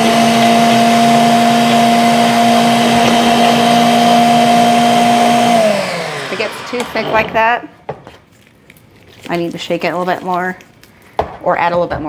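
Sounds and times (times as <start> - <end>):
blender running at high speed: 0.0 - 7.7.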